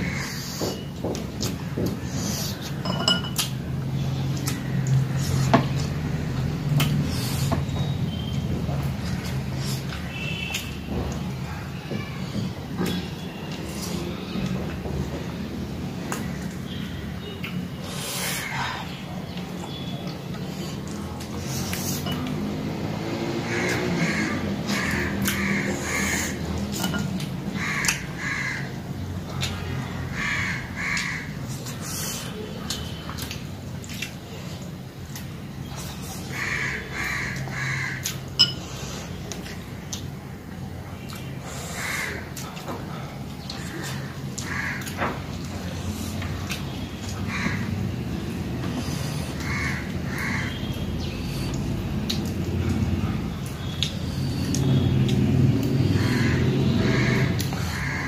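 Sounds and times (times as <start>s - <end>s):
clinks on ceramic plates: 2.8s - 3.5s, 26.8s - 27.2s, 38.4s - 38.7s
crow cawing: 23.5s - 26.4s, 27.5s - 28.8s, 30.1s - 31.3s, 36.3s - 38.1s, 41.8s - 42.2s, 43.8s - 45.0s, 47.3s - 47.8s, 49.4s - 50.6s, 56.0s - 58.0s
small clicks from eating: 32.6s - 35.4s, 51.5s - 56.0s.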